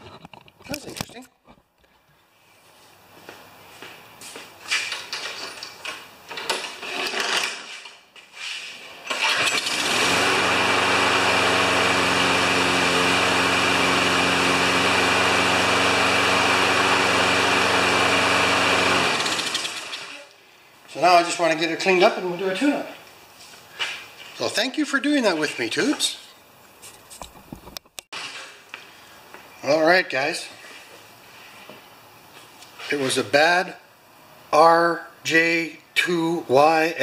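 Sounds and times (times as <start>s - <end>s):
lawn mower engine running: 9.1s - 20.2s.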